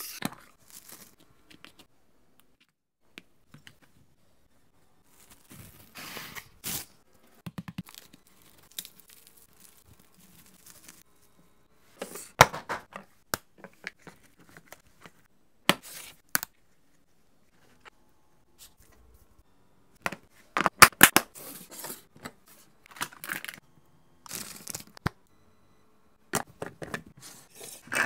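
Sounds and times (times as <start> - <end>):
plastic cling film crinkling: 7.8 - 11.1.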